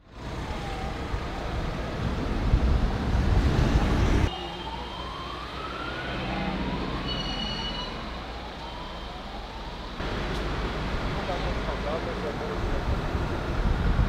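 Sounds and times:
emergency vehicle siren: 0:00.1 - 0:10.2.

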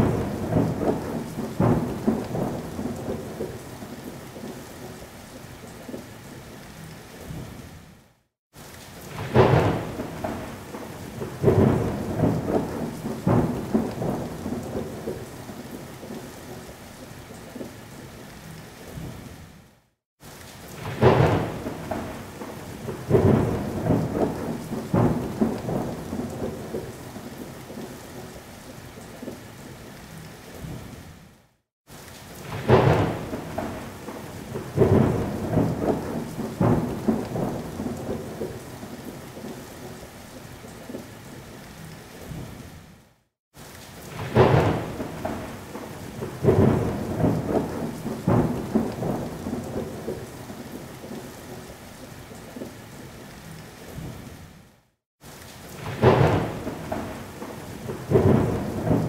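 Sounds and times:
loud thunder rumbles: 0:00.0 - 0:03.9, 0:09.1 - 0:15.7, 0:20.8 - 0:27.9, 0:32.4 - 0:39.6, 0:44.1 - 0:50.3, 0:55.7 - 0:59.0
steady rain: 0:00.0 - 0:59.0.

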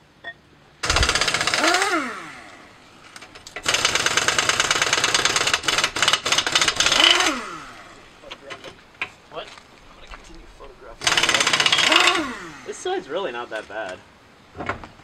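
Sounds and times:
impact wrench hammering: 0:00.8 - 0:02.5, 0:03.5 - 0:07.8, 0:11.0 - 0:12.6
impact wrench whine: 0:00.8 - 0:08.1, 0:11.0 - 0:12.9.

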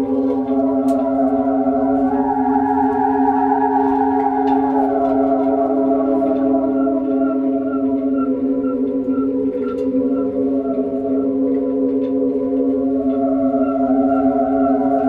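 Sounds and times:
whirling corrugated tubes humming: 0:00.0 - 0:15.0.

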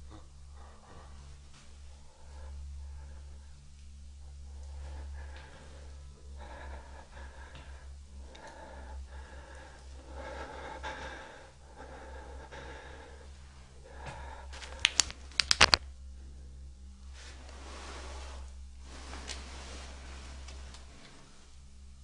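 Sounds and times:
faint breathing: 0:00.0 - 0:15.3
steady low hum: 0:00.0 - 0:22.0
sharp clicks: 0:14.7 - 0:15.8.

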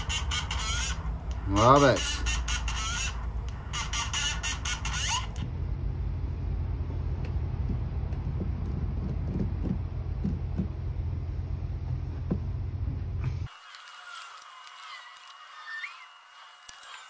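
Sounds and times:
steady low hum: 0:00.0 - 0:13.5.

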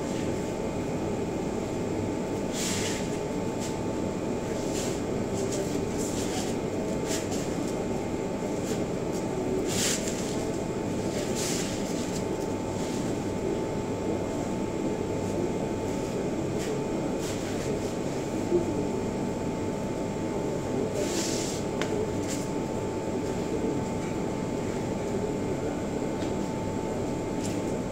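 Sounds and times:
steady machine hum: 0:00.0 - 0:27.9.

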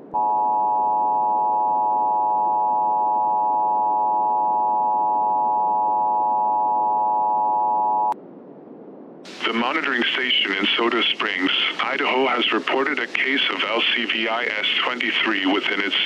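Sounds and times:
low static hiss: 0:08.1 - 0:16.0.

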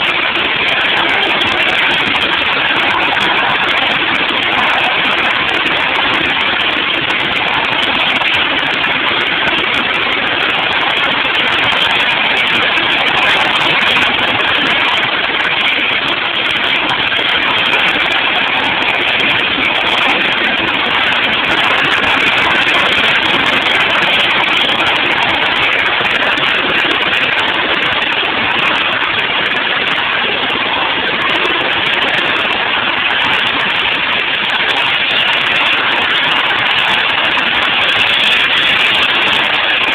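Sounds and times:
helicopter running: 0:00.0 - 0:39.9.

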